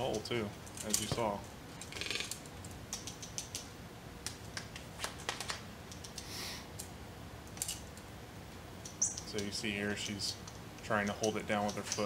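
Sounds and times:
bird bill clicking and tapping: 1.9 - 6.2, 8.8 - 12.0.

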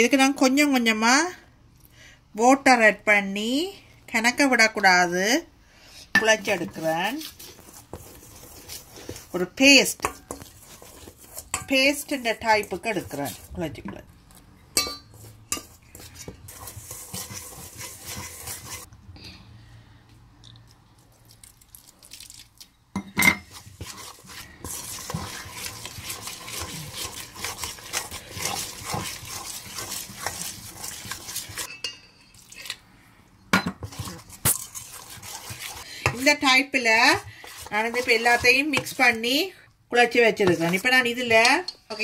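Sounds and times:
batter stirred in a metal bowl: 6.1 - 18.9, 21.1 - 32.8, 33.5 - 42.0.

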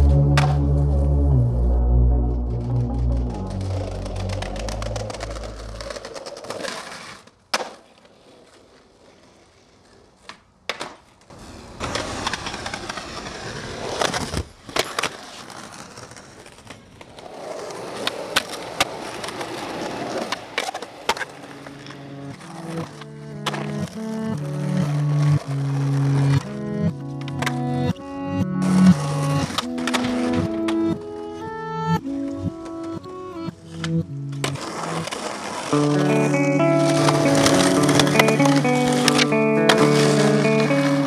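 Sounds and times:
music: 0.0 - 6.1, 22.1 - 41.0
skateboard wheels rolling on asphalt: 2.2 - 41.0
skateboard clacks: 3.4 - 41.0.

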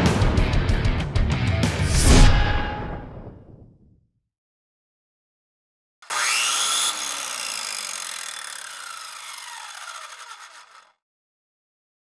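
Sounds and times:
power drill whirring: 6.0 - 11.0.

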